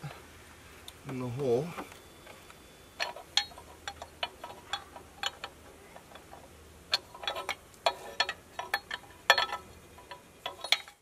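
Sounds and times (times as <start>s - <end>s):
metal parts clicking and clinking: 2.2s - 11.0s.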